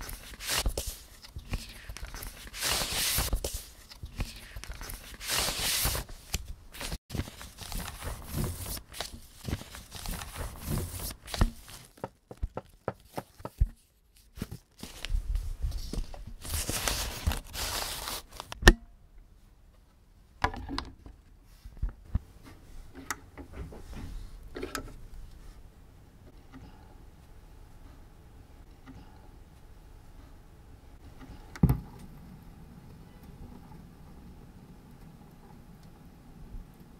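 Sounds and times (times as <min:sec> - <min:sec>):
paper sleeve rustling: 0:00.0 - 0:18.6.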